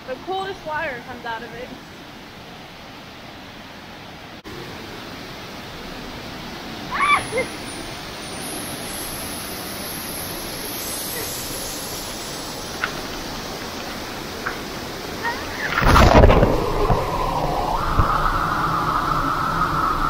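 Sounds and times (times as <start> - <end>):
high-pitched cry: 6.9 - 7.7.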